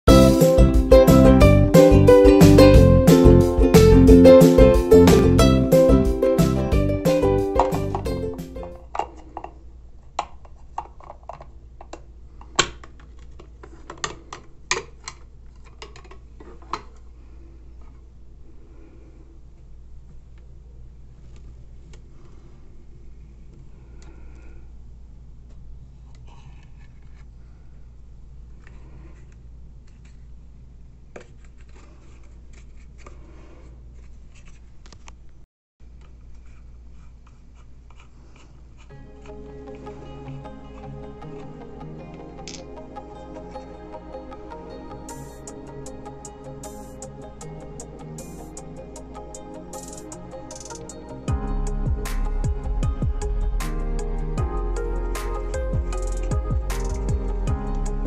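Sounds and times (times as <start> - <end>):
steady low hum: 38.6 - 58.0.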